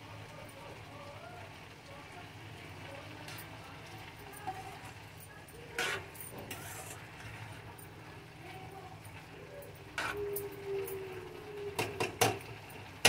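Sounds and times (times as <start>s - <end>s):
spatula scraping a pan: 5.7s - 7.6s, 10.0s - 10.2s
metal scraping against pan: 5.7s - 7.7s, 10.0s - 10.2s.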